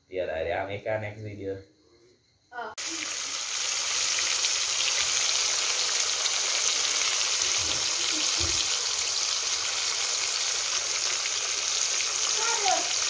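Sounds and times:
deep-frying sizzle in oil: 0:02.8 - 0:13.0.

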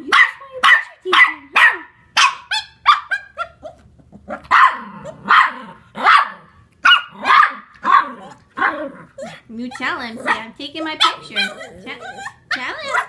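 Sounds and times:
dog barking sharply: 0:00.1 - 0:03.4, 0:04.4 - 0:08.8
small dogs squabbling: 0:02.5 - 0:05.3, 0:08.0 - 0:13.0.

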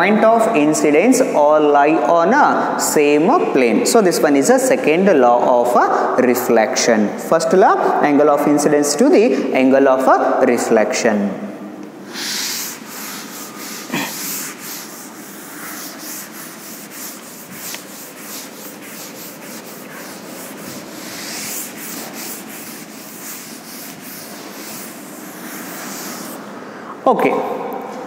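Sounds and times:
duster rubbing on chalkboard: 0:12.1 - 0:26.6.

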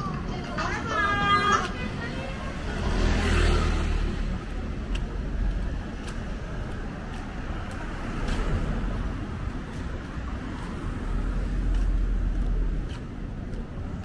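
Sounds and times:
faint footsteps: 0:00.0 - 0:03.0, 0:04.0 - 0:14.0
low traffic drone: 0:00.0 - 0:14.0
car driving past: 0:02.5 - 0:04.5.

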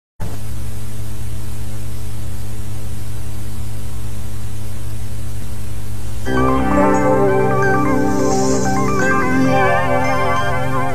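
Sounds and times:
electrical mains hum: 0:00.2 - 0:10.9
static hiss: 0:00.2 - 0:10.9.

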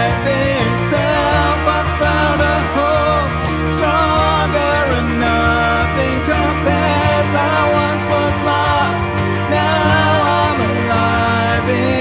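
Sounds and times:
band playing worship song: 0:00.0 - 0:12.0
man and woman singing: 0:00.0 - 0:12.0.

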